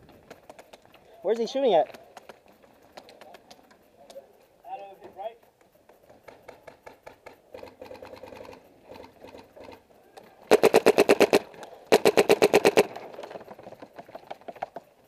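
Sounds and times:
faint paintball shots popping: 0.0 - 15.0
paintball marker rapid firing: 5.9 - 9.8, 10.5 - 14.7.

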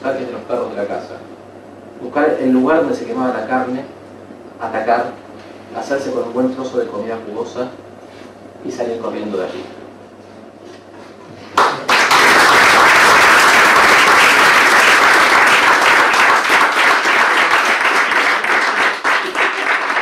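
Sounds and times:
audience applauding: 11.6 - 20.0.

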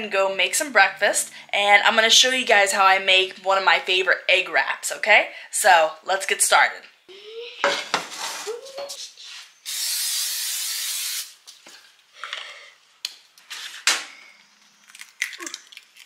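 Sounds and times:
cooking spray hissing: 9.6 - 11.4.

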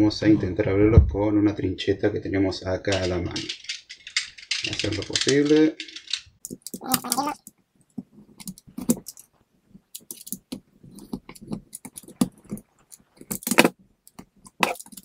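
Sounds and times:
box being handled: 10.0 - 15.0.

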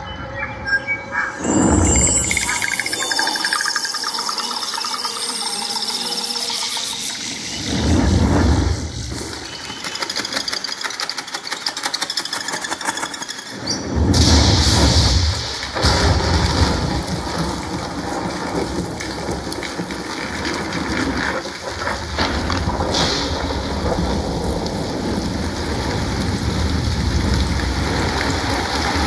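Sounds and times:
bright burst of noise: 1.2 - 10.9
deep rumbling thunder: 7.7 - 9.4, 13.9 - 29.0
steady rain: 14.0 - 29.0.

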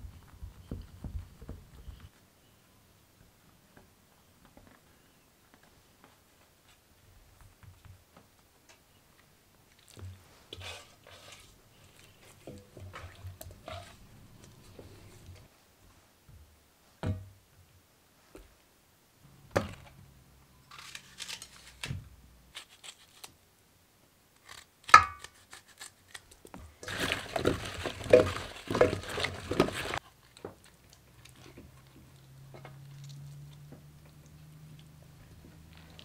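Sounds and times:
wet squishing and crinkling: 9.6 - 15.5, 24.4 - 36.0.

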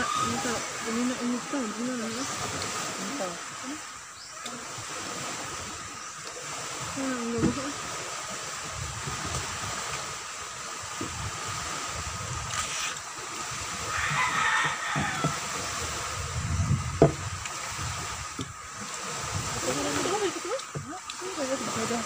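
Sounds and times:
soft knocks: 17.0 - 17.2.

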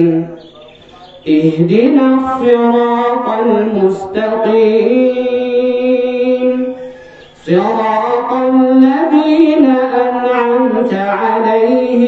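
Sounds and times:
man chanting recitation: 0.0 - 12.0.

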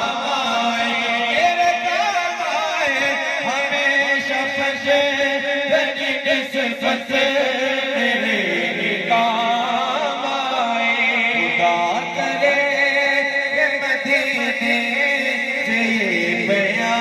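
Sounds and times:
man singing into a microphone: 0.0 - 17.0.

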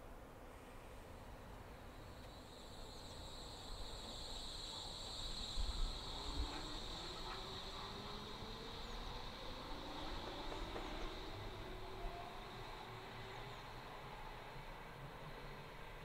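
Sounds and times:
electric train high-pitched chirp: 1.8 - 16.0
train motor low rising tone: 6.0 - 15.7.

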